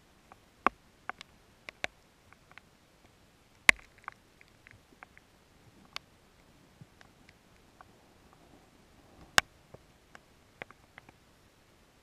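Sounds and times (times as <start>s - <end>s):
raindrops ticking on camera: 0.0s - 8.4s.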